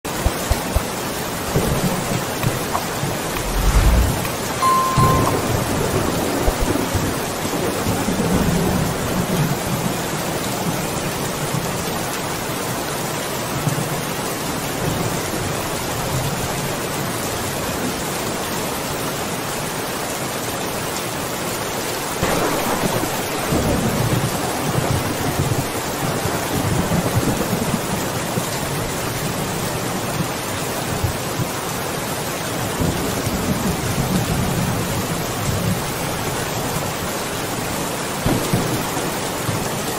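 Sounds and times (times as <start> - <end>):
heavy rain: 0.0 - 39.9
thunder rumbling: 0.2 - 9.7, 38.2 - 39.8.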